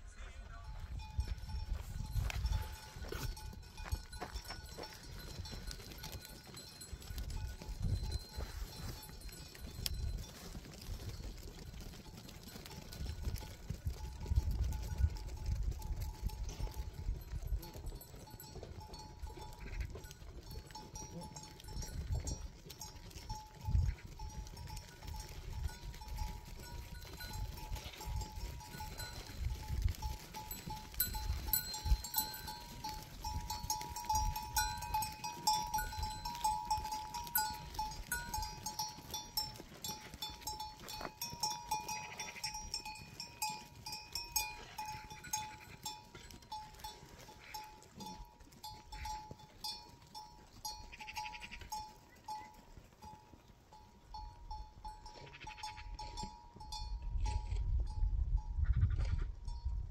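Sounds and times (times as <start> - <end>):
goats and sheep bleating: 0.0 - 15.4, 16.0 - 57.5
small clicks and tinkles: 1.0 - 58.1.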